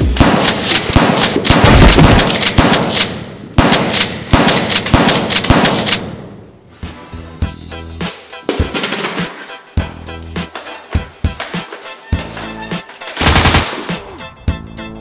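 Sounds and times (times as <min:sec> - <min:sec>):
automatic gunfire: 0:00.1 - 0:06.1, 0:13.1 - 0:14.0.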